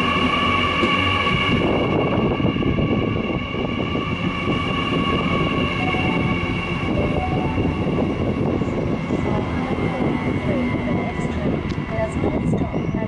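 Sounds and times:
train wheels rumbling on rail: 0.0 - 13.0
high-pitched tones: 5.5 - 8.6.

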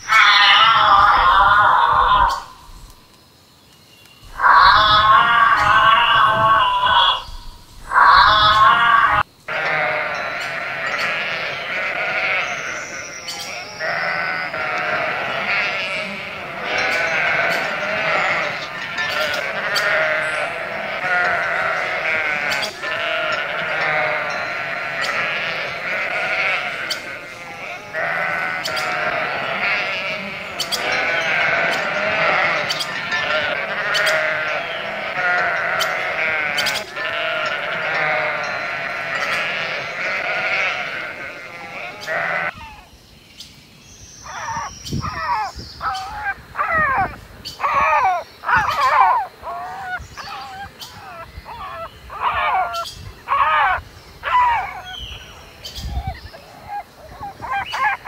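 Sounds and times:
sheep bleating: 4.3 - 7.3, 7.9 - 42.6.

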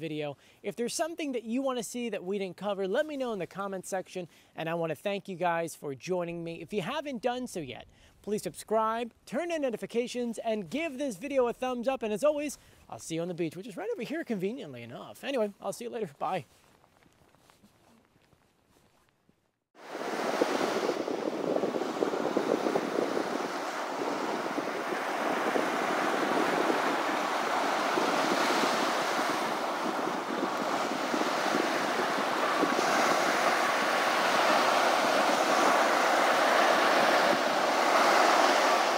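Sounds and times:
ocean waves breaking on beach: 19.8 - 38.9.

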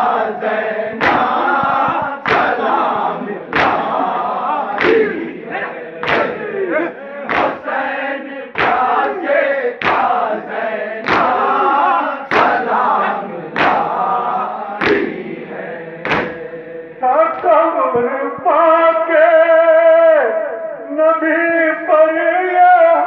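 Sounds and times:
unison chest-beating slaps: 0.0 - 7.8, 8.5 - 15.3, 16.0 - 16.5
men chanting a lament in chorus: 0.0 - 23.0.

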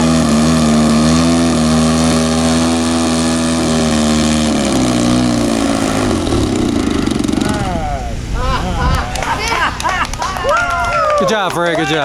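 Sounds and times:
model airplane engine and propeller: 0.0 - 8.4.

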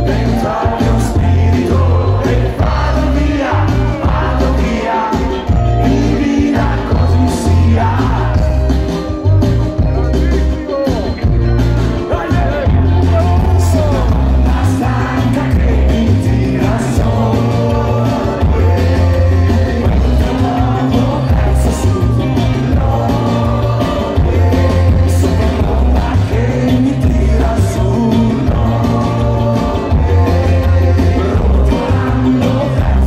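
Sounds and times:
bass guitar: 0.0 - 33.0
drums: 0.0 - 33.0
electric guitars: 0.0 - 33.0
keyboards: 0.0 - 33.0
lead vocalist singing: 0.0 - 33.0.

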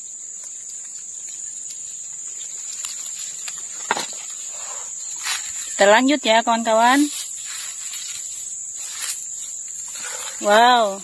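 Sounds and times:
high-pitched insect drone: 0.0 - 11.0.

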